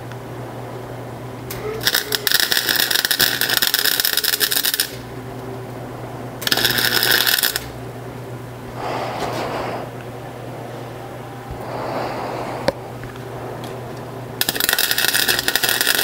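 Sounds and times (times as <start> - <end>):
steady low hum: 0.0 - 16.0
arc welding: 1.5 - 5.1, 6.4 - 7.8, 14.4 - 16.0.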